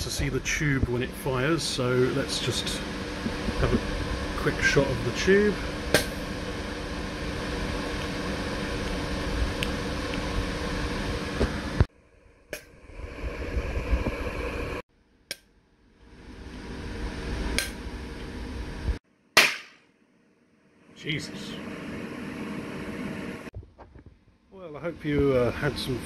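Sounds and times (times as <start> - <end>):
charging circuit hum and hiss: 0.0 - 14.8, 21.0 - 23.6, 24.6 - 26.0.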